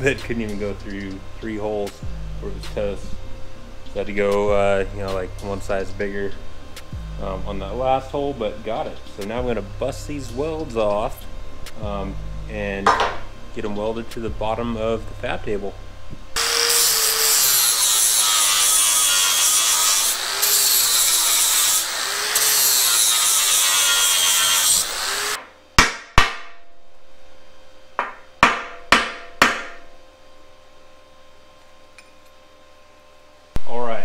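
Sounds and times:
angle grinder grinding steel: 16.4s - 25.4s.

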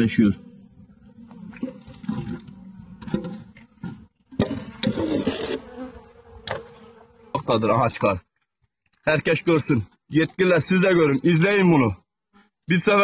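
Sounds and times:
bees buzzing: 0.0s - 7.7s
knocks and scrapes: 1.2s - 5.7s.

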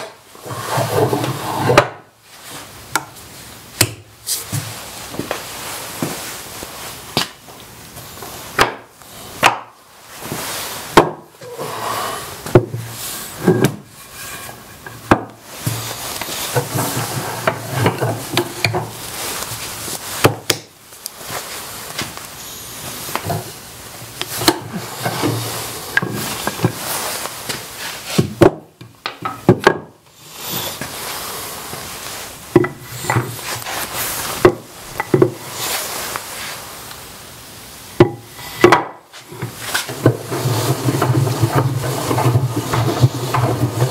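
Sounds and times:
wood rubbing and sliding: 0.0s - 2.7s, 10.2s - 20.5s, 22.8s - 28.5s, 29.2s - 36.9s, 38.0s - 43.9s
wooden boards knocking: 8.6s - 9.7s, 11.0s - 11.3s, 28.2s - 30.0s, 32.5s - 33.4s, 38.0s - 43.9s.

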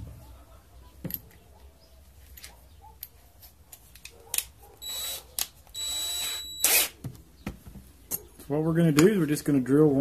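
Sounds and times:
drill motor whining: 4.8s - 7.0s.

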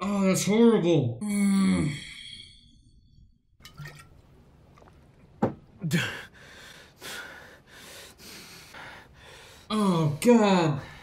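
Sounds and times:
man breathing hard: 5.9s - 9.7s.

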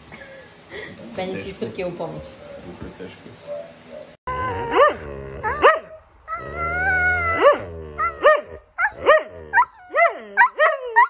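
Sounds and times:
husky yowling: 4.3s - 11.0s.

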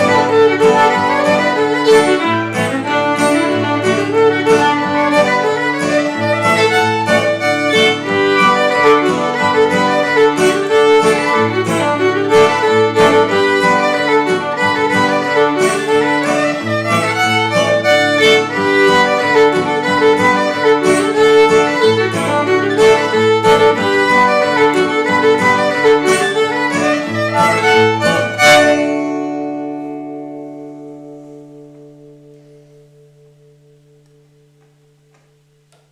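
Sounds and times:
violin playing lively fiddle tune: 0.0s - 29.4s
lower accompaniment: 0.0s - 35.9s.

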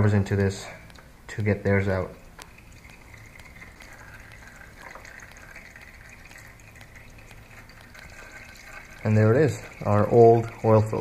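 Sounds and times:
oil trickling into plastic pan: 0.9s - 11.0s
faint ticks: 2.3s - 11.0s.

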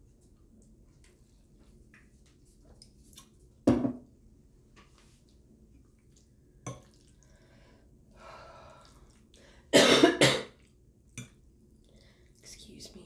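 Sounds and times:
woman coughing: 9.8s - 10.5s.

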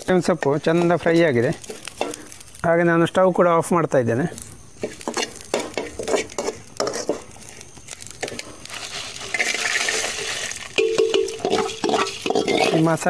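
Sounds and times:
spices rustling into pan: 0.0s - 13.0s
spatula clicking and scraping: 0.3s - 2.4s, 4.8s - 7.6s, 11.0s - 12.9s
metal plate clinking pan: 10.8s - 12.9s.

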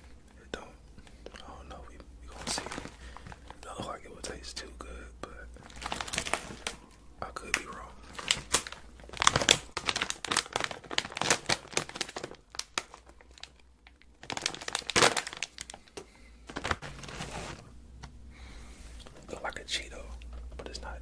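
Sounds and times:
plastic wrapper crinkling: 2.3s - 3.8s, 5.6s - 17.7s.

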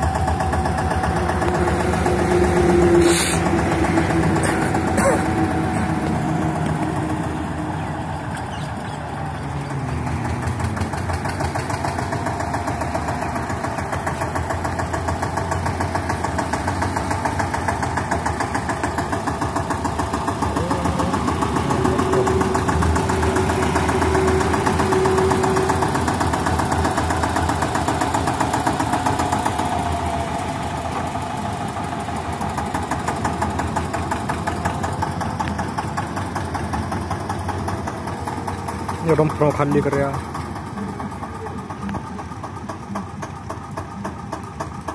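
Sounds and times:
steady whine: 0.0s - 11.2s, 18.8s - 27.8s
tractor diesel engine running: 0.0s - 44.9s.

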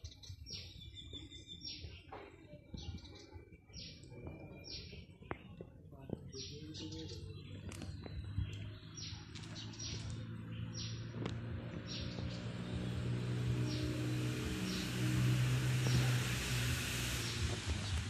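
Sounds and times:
small birds chirping: 0.0s - 18.0s
steady low hum: 10.9s - 18.0s
rising hiss: 12.0s - 18.0s.

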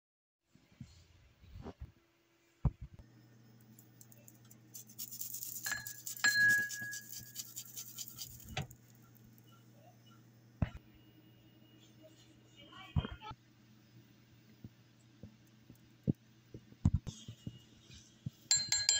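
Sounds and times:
utensil scraping ceramic bowl: 4.7s - 8.7s.

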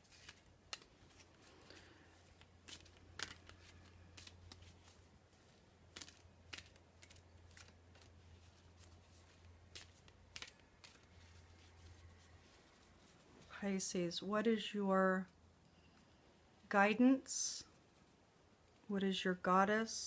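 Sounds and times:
cards being shuffled: 0.0s - 13.2s
low steady hum: 0.0s - 20.0s.

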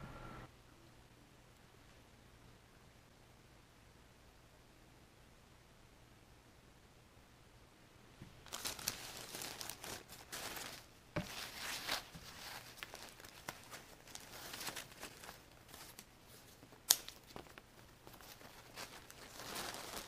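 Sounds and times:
plastic packaging crinkling: 8.4s - 20.0s.

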